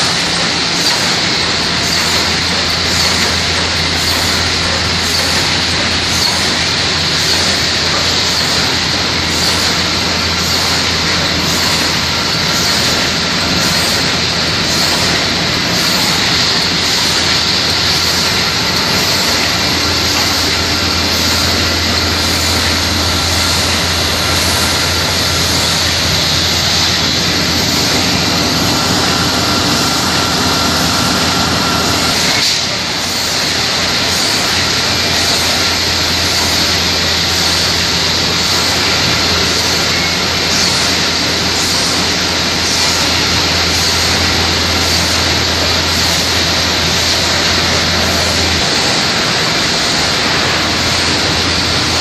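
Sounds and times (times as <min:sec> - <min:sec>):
machinery running with hiss: 0:00.0 - 0:52.0.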